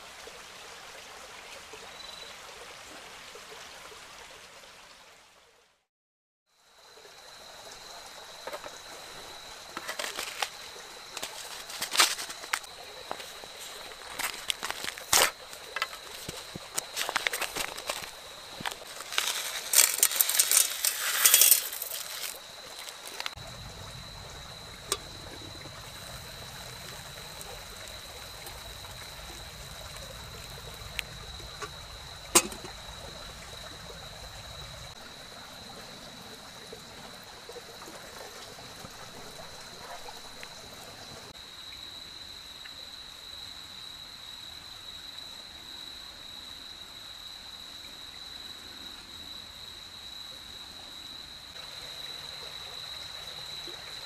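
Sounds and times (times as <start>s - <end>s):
hot water trickling into cup: 8.4s - 34.4s
crackly rustling: 9.7s - 33.0s.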